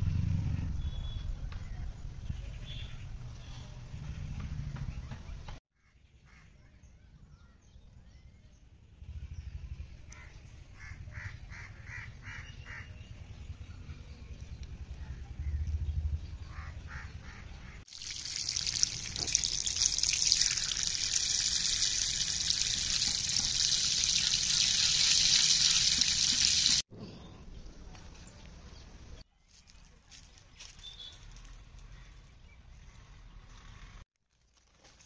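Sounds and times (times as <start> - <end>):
water splashing in colander: 17.9 - 26.8.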